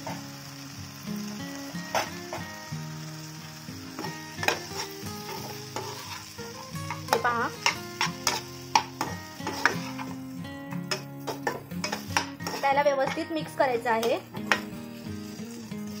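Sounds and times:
food sizzling in a pan: 0:00.0 - 0:16.0
spatula scraping a pan: 0:04.0 - 0:10.3, 0:10.9 - 0:16.0.

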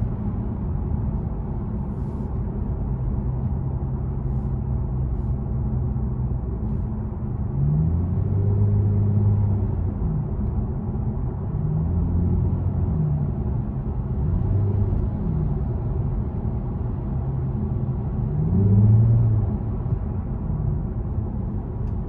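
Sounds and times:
low exhaust hum: 0:00.0 - 0:22.0
road noise: 0:00.0 - 0:22.0.

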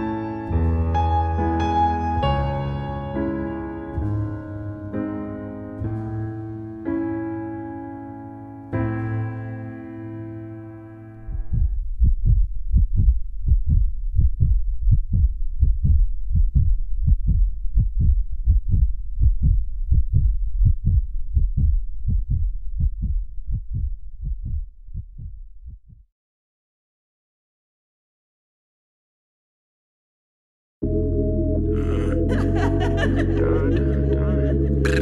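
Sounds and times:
heartbeat double thumps: 0:11.2 - 0:26.1.

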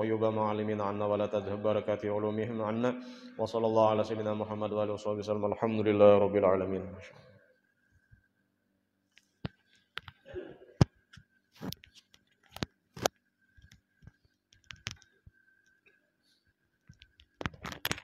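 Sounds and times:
faint high hum: 0:00.0 - 0:11.8.

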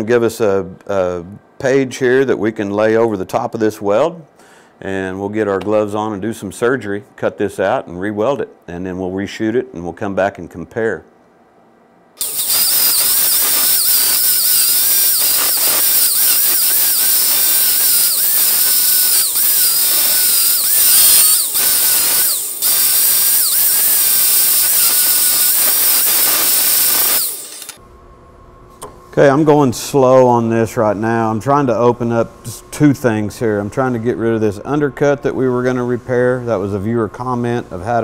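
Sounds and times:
angle grinder grinding steel: 0:12.2 - 0:27.8.

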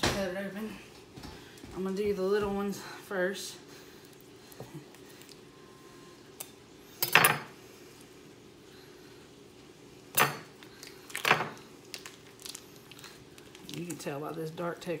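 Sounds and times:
plastic wrapper crackling: 0:10.8 - 0:14.6.

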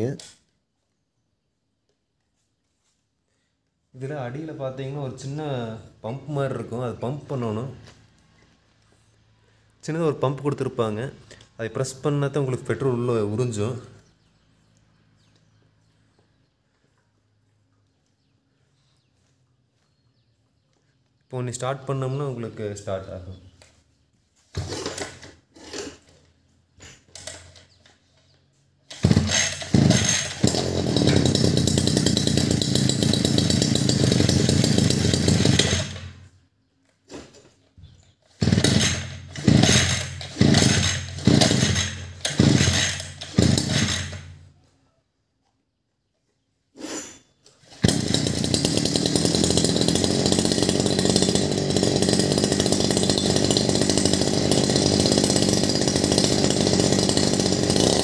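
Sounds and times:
brush cutter engine running: 0:24.5 - 0:36.3, 0:37.2 - 0:44.5, 0:47.6 - 0:58.0.

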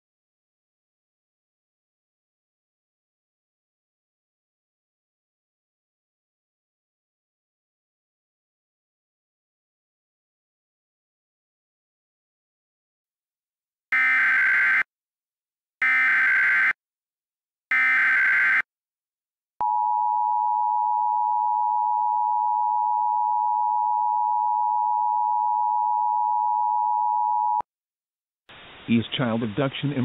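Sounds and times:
buzzing digital data tones: 0:17.7 - 0:18.6.

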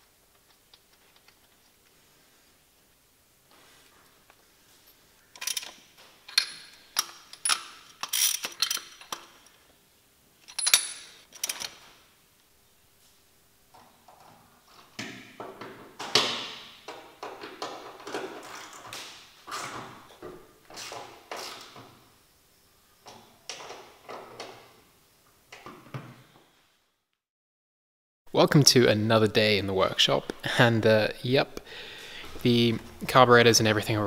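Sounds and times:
metal parts clattering: 0:05.4 - 0:09.6.

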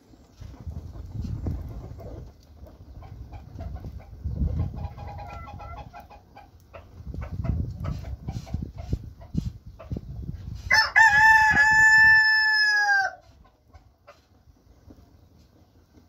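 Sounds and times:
firewood crackling and popping: 0:00.0 - 0:16.0
rooster crowing: 0:10.7 - 0:13.2.

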